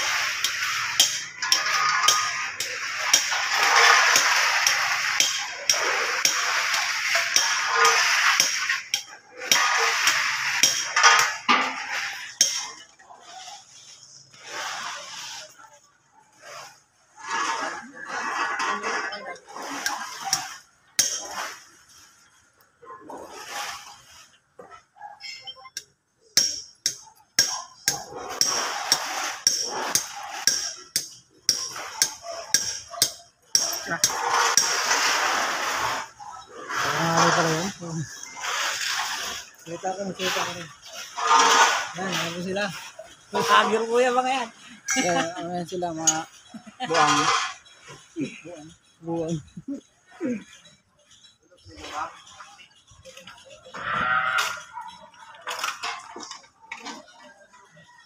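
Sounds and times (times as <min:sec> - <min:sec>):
hammer striking metal: 0:00.4 - 0:03.3, 0:08.4 - 0:11.8, 0:26.4 - 0:34.7.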